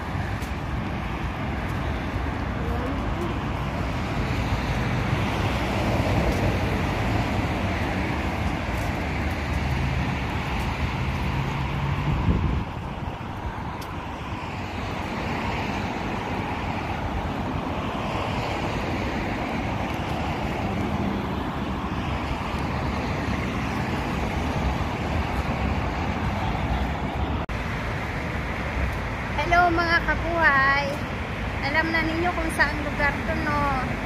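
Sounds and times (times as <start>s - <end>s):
wind on microphone: 0.0s - 29.4s
road traffic noise: 0.0s - 34.0s.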